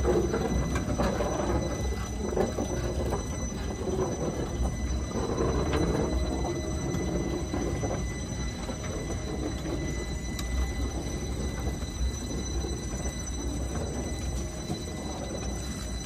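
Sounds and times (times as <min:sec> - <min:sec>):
steel wheels rumbling on rails: 0:00.0 - 0:16.0
thin high whine: 0:00.0 - 0:16.0.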